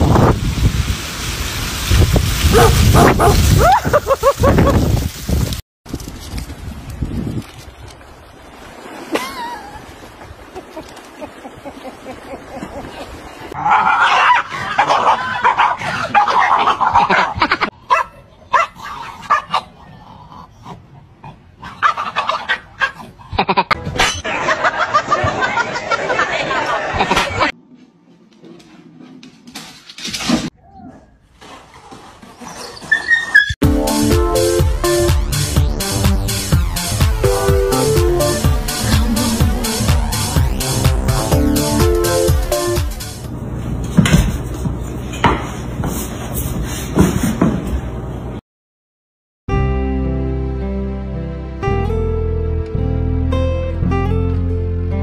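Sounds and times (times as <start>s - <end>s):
wind: 0.0s - 33.6s
small waves lapping: 7.4s - 13.6s
dogs vocalising: 21.6s - 23.4s
electronic dance music: 33.6s - 43.2s.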